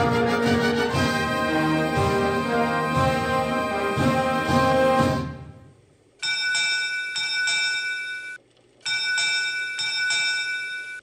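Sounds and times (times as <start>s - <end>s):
theme music: 0.0s - 5.8s.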